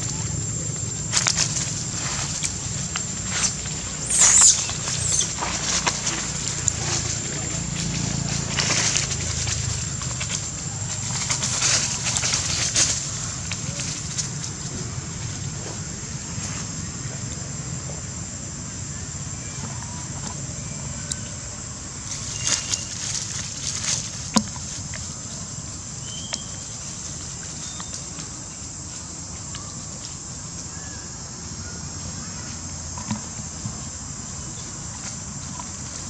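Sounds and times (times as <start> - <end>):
dry leaves crackling: 0.0 - 17.5, 19.0 - 36.0
steady high hiss: 0.0 - 36.0
bird chirps: 4.0 - 5.4, 26.0 - 26.6.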